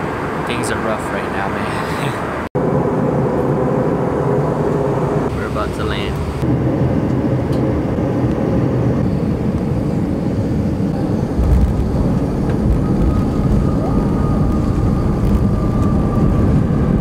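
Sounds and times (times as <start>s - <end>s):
jet engine and airflow rumble: 0.0s - 17.0s
faint steady whine: 2.7s - 17.0s.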